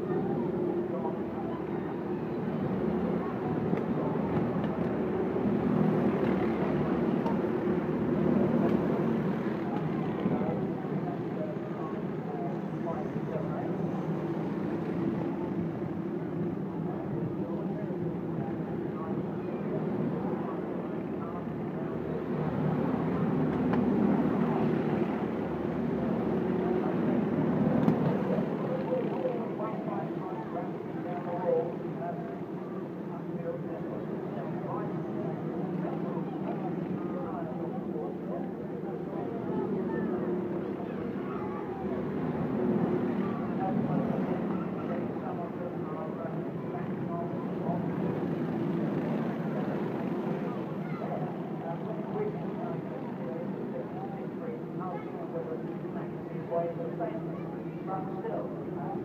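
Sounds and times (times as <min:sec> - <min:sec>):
kart engines droning: 0:00.0 - 0:16.9
crowd chatter: 0:00.0 - 0:59.0
racing kart engines: 0:00.0 - 0:59.0
spectators talking: 0:00.0 - 0:59.0.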